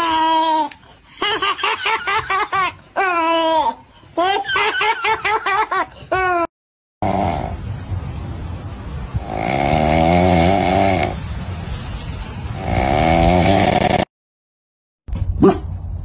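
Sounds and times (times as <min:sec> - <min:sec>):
monkey snoring: 0:07.0 - 0:07.6, 0:09.2 - 0:11.2, 0:12.6 - 0:14.1.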